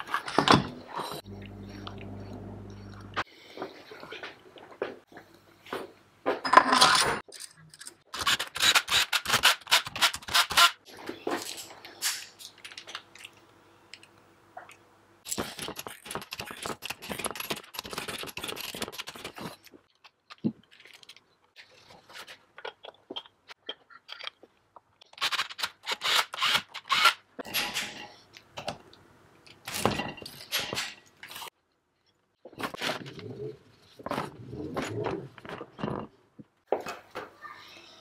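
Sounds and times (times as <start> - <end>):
tools clattering on metal workbench: 6.3 - 8.0.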